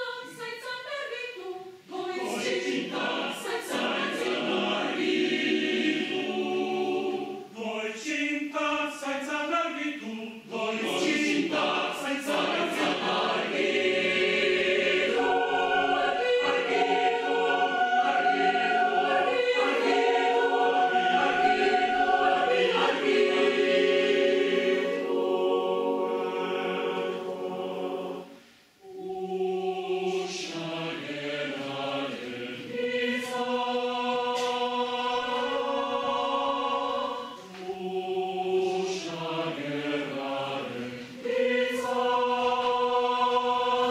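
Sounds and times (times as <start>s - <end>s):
mixed choir singing: 0.0s - 43.9s.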